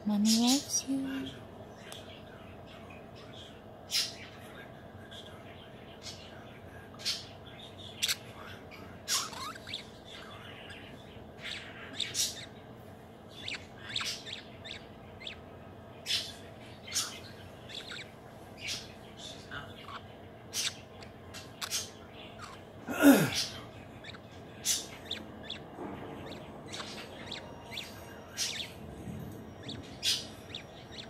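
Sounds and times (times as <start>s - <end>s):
budgie chirping and chattering: 7.0s - 8.3s, 9.0s - 12.6s, 13.3s - 28.8s, 29.4s - 31.0s.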